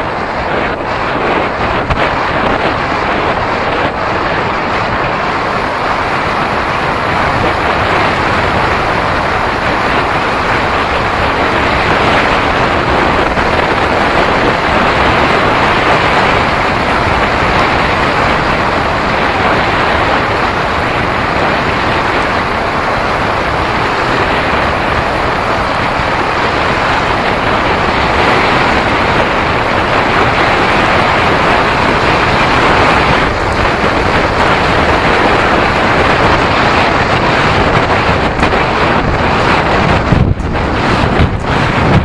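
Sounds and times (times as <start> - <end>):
wind buffeting microphone: 0.0 - 42.0.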